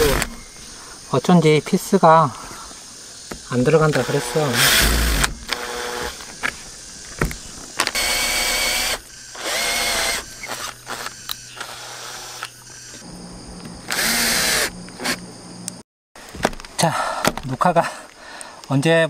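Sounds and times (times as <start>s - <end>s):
cordless drill driving screws: 0.0s - 0.3s, 3.9s - 6.3s, 7.8s - 13.0s, 13.9s - 15.2s.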